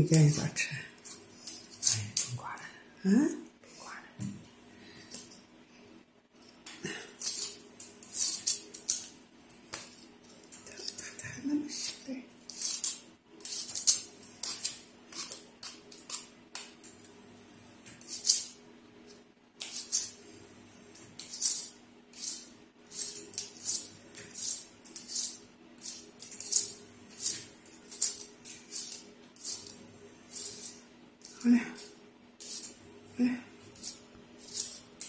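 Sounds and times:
vegetable peeler scraping skin: 7.2s - 9.1s, 11.8s - 16.3s, 17.9s - 18.6s, 21.0s - 32.8s, 33.6s - 35.0s.

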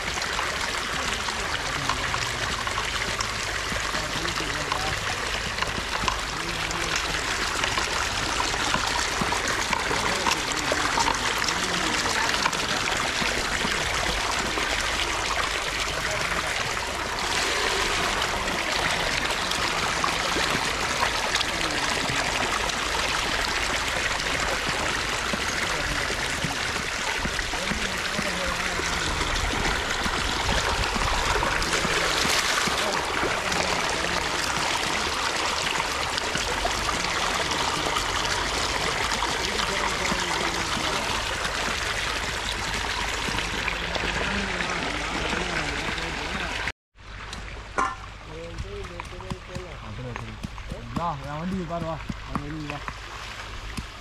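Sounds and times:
water gushing from hose: 0.0s - 54.0s.

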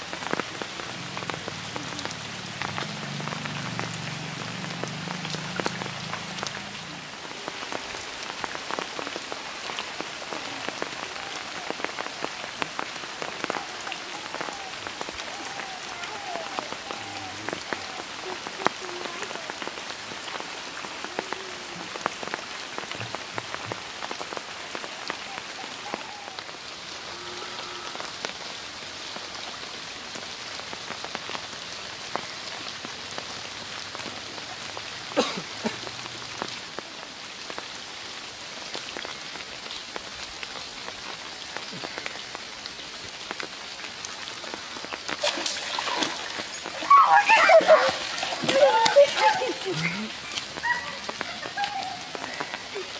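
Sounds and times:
water drips: 0.0s - 28.4s, 29.1s - 52.9s
rain falling on pond: 0.0s - 52.9s
fish thrashing in water: 45.2s - 49.7s.

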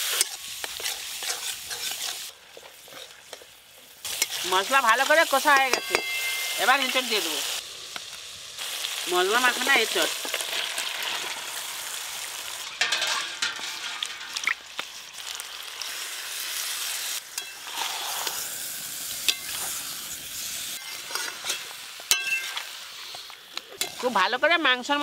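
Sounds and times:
metal spatula scraping wok: 0.0s - 7.6s, 12.4s - 14.5s, 17.2s - 18.6s, 19.2s - 24.2s
food sizzling in hot oil: 0.0s - 25.0s.

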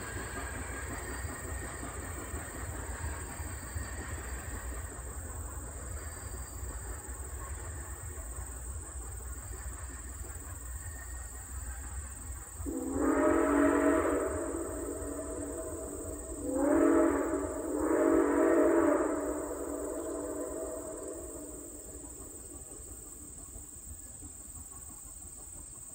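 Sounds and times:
steam locomotive rumbling: 0.0s - 25.9s
steam whistle blast: 12.6s - 22.4s.

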